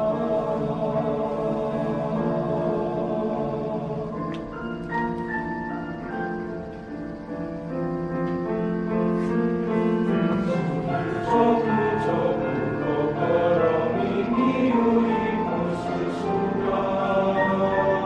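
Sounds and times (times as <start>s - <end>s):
male choir singing: 0.0s - 4.7s, 9.6s - 18.0s.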